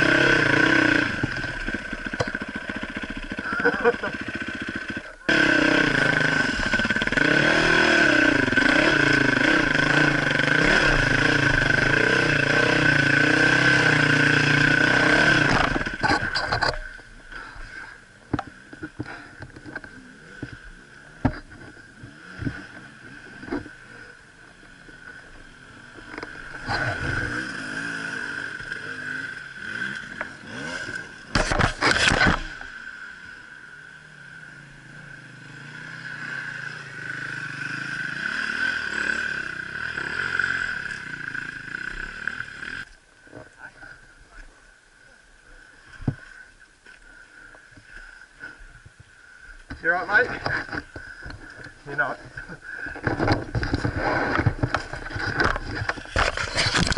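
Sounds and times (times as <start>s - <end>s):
loud engine bursts: 0.0s - 16.3s
dirt bike engine revving: 0.0s - 42.9s, 49.7s - 56.9s
faint engine: 0.0s - 56.9s
knocks and scrapes of bike: 1.0s - 5.2s, 14.6s - 24.1s, 24.7s - 32.8s, 49.6s - 56.9s.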